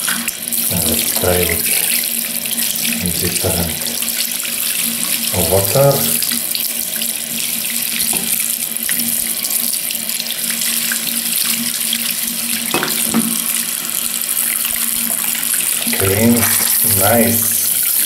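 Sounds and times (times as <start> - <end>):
tap water splashing: 2.8 - 9.0, 10.5 - 16.8.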